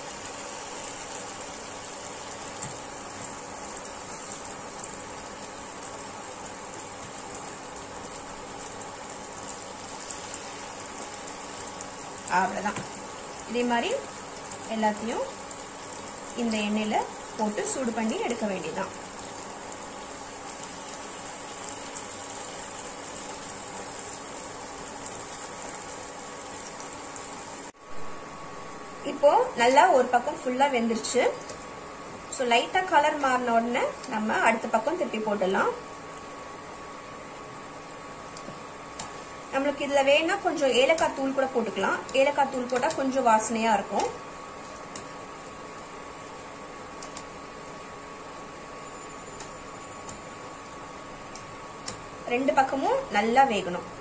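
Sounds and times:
banana slices frying in oil: 0.0s - 54.0s.

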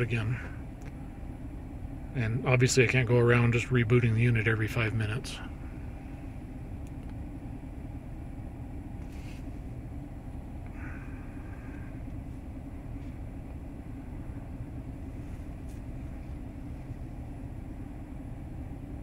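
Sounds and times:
truck engine idling: 0.0s - 19.0s.

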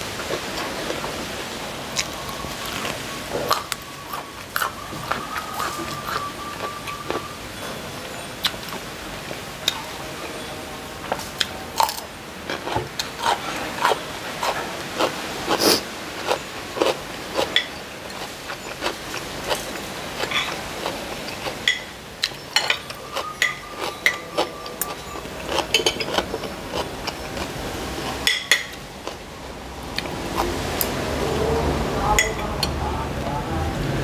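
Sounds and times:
cutlery clinking on a ceramic plate: 21.3s - 26.5s.

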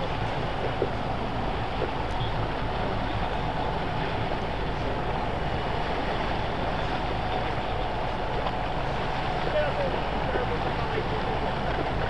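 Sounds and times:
boat engine running: 0.0s - 12.0s
water rushing along hull: 0.0s - 12.0s.

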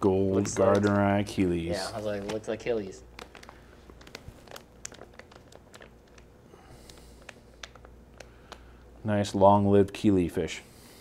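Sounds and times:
low room hum: 0.0s - 11.0s
plastic bag crinkling: 0.2s - 8.9s.

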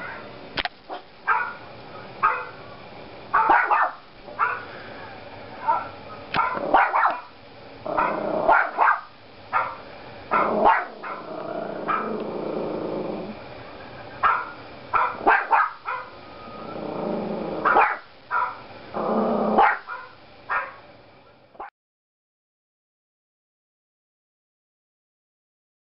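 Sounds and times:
puppy barking: 0.0s - 0.2s, 0.9s - 1.6s, 2.2s - 2.6s, 3.3s - 4.7s, 5.6s - 7.3s, 7.9s - 12.2s, 14.2s - 16.2s, 17.6s - 18.6s, 19.6s - 20.8s
puppy growling: 5.7s - 9.0s, 10.3s - 13.4s, 16.4s - 18.0s, 18.9s - 19.9s.

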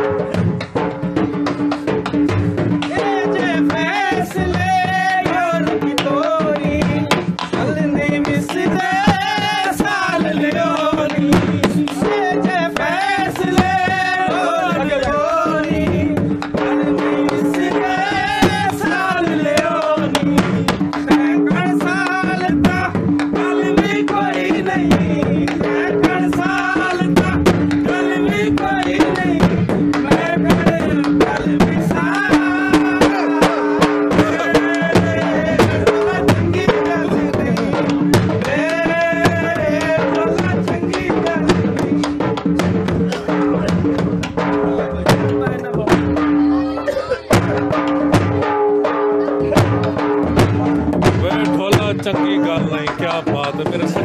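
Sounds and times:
fast hand-drum beats: 0.0s - 54.0s.

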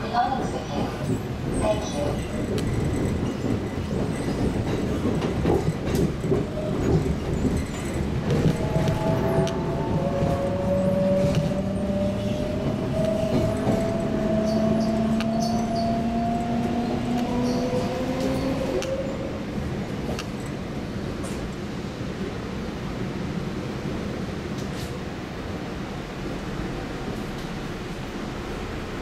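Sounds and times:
train wheels rumbling on rail: 0.0s - 29.0s
train whine: 0.0s - 29.0s.

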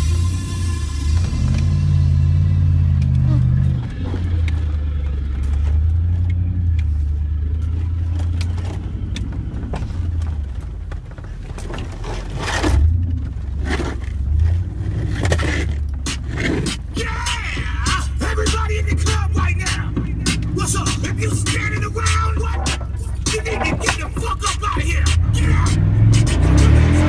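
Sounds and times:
car engine droning: 0.0s - 27.0s
knocks and scrapes of truck bumping: 7.6s - 26.9s.

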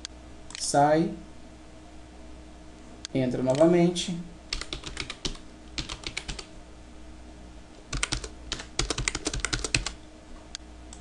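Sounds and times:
computer keyboard typing: 4.5s - 6.5s, 7.9s - 10.0s.

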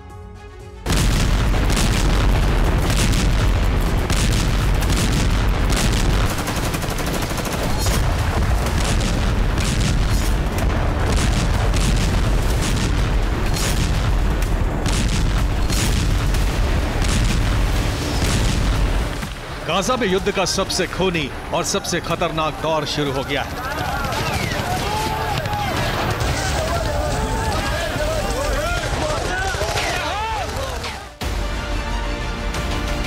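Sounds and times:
explosions rumbling: 0.8s - 20.4s, 23.4s - 30.0s
gunfire shots: 0.9s - 19.2s.

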